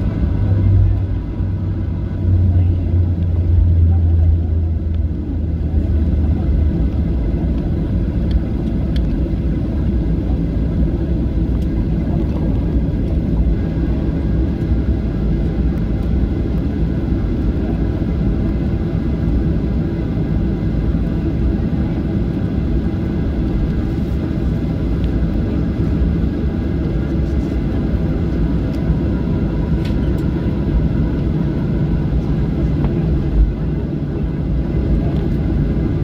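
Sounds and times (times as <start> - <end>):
aircraft engine rumble: 0.0 - 36.0.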